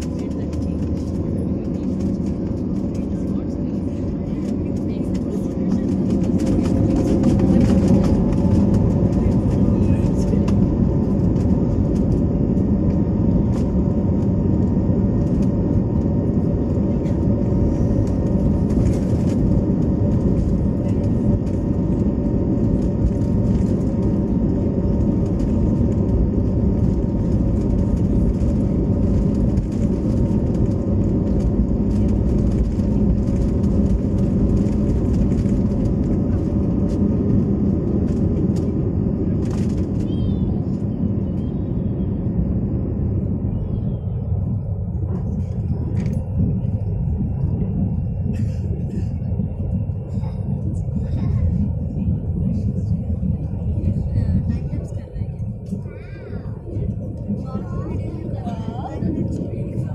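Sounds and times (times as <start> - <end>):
jet engines at takeoff thrust: 0.0 - 59.9.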